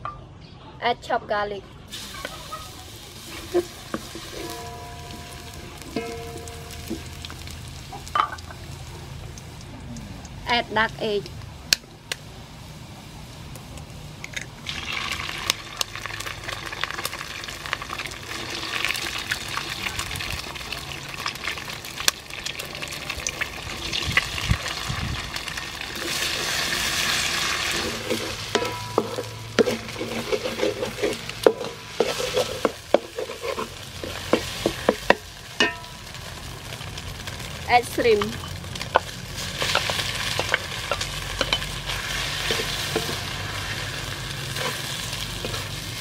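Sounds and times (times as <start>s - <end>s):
eggs sizzling in hot oil: 1.9s - 46.0s
wooden spatula scraping a wok: 3.2s - 7.5s, 26.0s - 35.3s, 38.4s - 46.0s.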